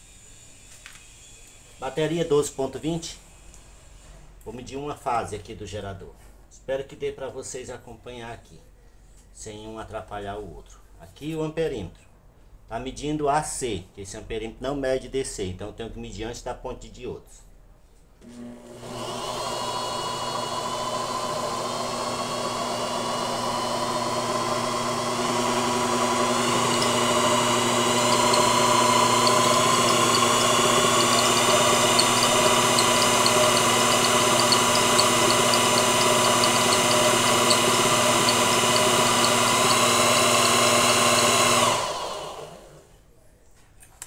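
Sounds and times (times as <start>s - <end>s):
electric motor whining: 18.5s - 42.8s.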